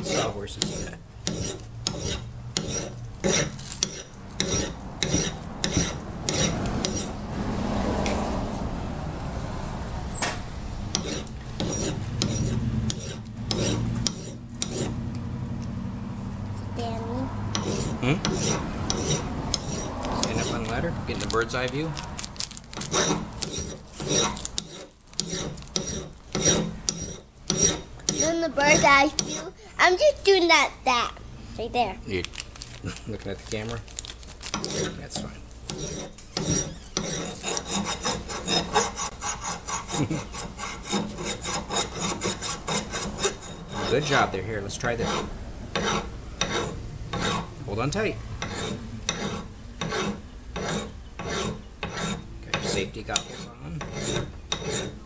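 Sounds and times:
file rasping on metal: 0.0 - 7.2, 10.9 - 15.0, 17.5 - 21.2, 22.8 - 29.6, 34.5 - 47.5, 48.4 - 55.0.

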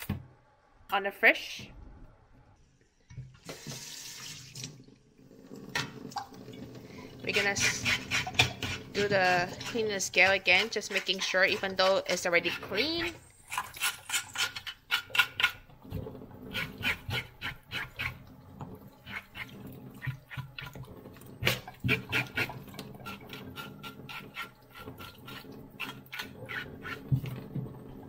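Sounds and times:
fish being rubbed and rinsed: 6.8 - 28.0
knife scraping fish scales: 7.3 - 15.7, 16.5 - 18.2, 19.0 - 20.4, 21.4 - 27.4.

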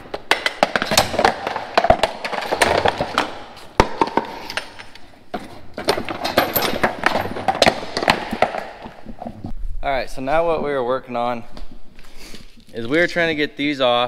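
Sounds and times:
metal clanking and knocking: 0.0 - 9.5.

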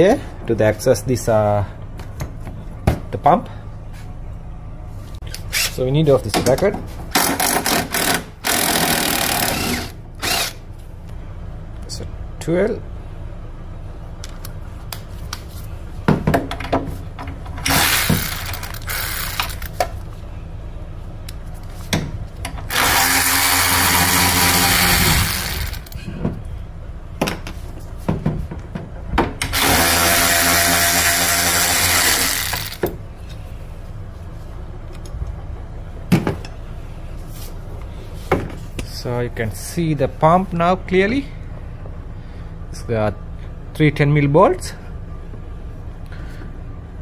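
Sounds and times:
cordless power tool spinning: 7.2 - 10.6, 17.6 - 19.7, 22.6 - 26.0, 29.5 - 32.8.

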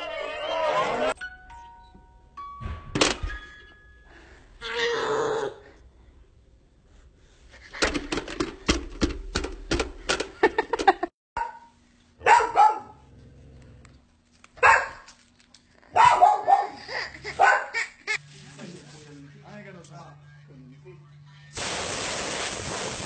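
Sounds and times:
dog barking: 11.4 - 13.0, 14.6 - 15.1, 15.9 - 16.8, 17.4 - 17.8.

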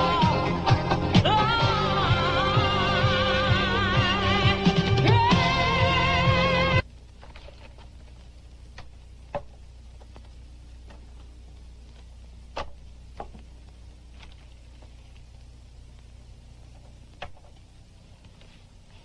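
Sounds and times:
music: 0.0 - 6.8
steady low hum: 0.0 - 19.0.

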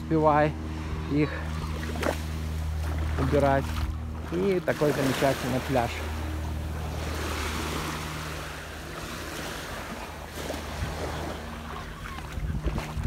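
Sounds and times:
low motor hum: 0.0 - 13.0
small waves washing on shore: 0.0 - 13.0
wind on microphone: 9.8 - 13.0.

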